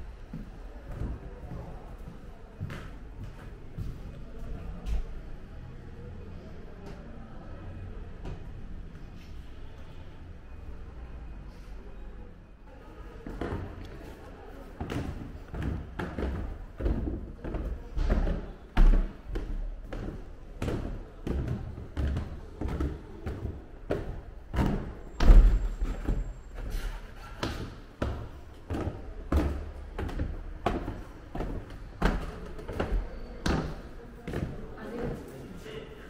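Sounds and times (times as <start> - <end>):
footsteps on wooden stairs: 14.8 - 26.8, 27.4 - 35.2.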